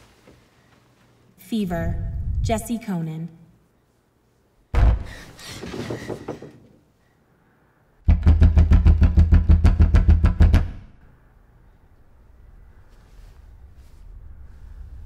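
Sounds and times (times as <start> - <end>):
faint low hum: 0.0 - 5.3, 10.9 - 15.0.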